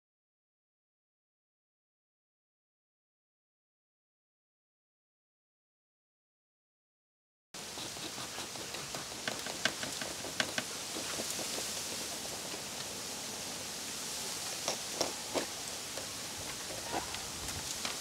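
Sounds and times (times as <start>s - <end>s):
steady outdoor hiss: 7.6s - 18.0s.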